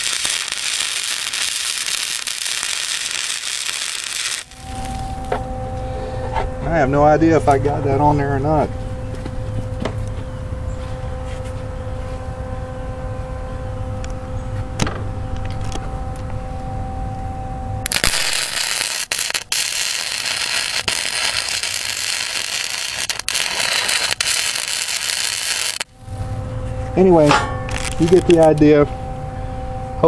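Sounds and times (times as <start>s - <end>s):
welding arc crackling and sizzling: 0.0s - 5.4s, 17.8s - 25.9s, 27.7s - 28.6s
steady low hum: 0.0s - 30.0s.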